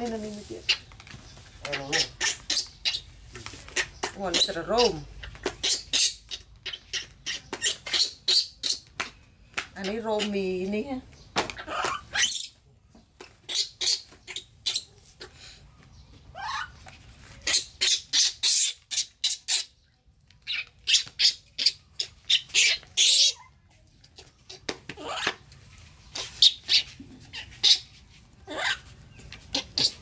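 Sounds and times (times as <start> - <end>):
baby monkey squealing: 1.7 - 3.0, 3.7 - 8.9, 11.6 - 12.6, 13.5 - 14.9, 16.4 - 16.8, 17.4 - 19.7, 20.4 - 23.5, 26.1 - 28.9, 29.5 - 30.0.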